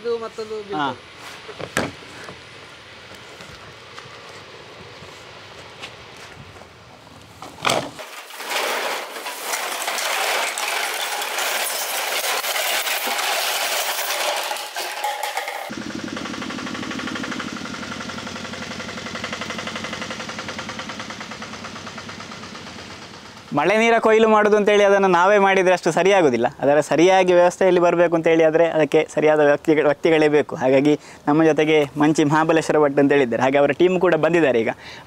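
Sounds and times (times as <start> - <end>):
truck engine humming: 15.7 - 23.6.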